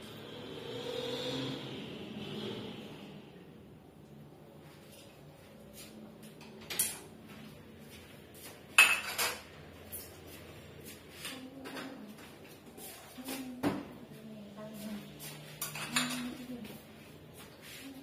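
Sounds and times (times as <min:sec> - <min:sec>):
dishes knocking and clinking: 0:08.8 - 0:09.5, 0:15.6 - 0:16.4.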